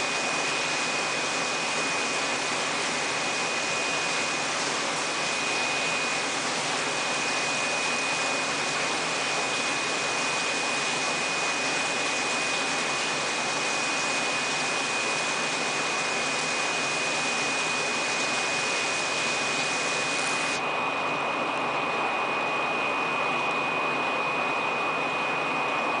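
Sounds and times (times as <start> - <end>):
high-pitched whine: 5.1 - 6.4.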